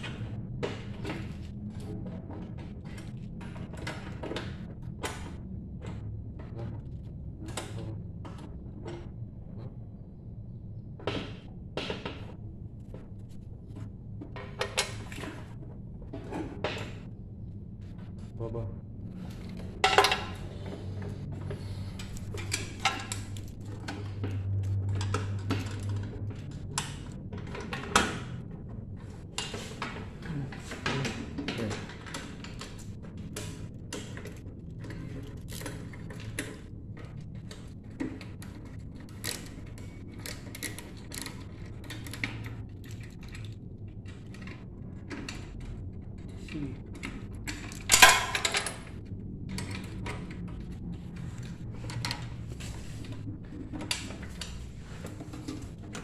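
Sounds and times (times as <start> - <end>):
metal parts clicking and rattling: 19.2 - 56.0.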